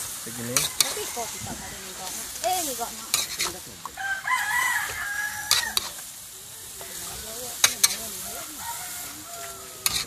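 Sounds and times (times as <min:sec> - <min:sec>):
meat stir-frying: 0:00.0 - 0:10.0
spatula scraping a wok: 0:00.0 - 0:10.0
rooster crowing: 0:00.4 - 0:02.2, 0:04.0 - 0:06.0, 0:08.1 - 0:10.0.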